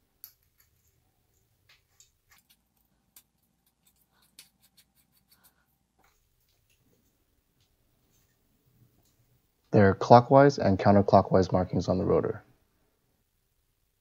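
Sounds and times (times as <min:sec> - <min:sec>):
metal nut clicking and scraping: 0:01.9 - 0:05.6.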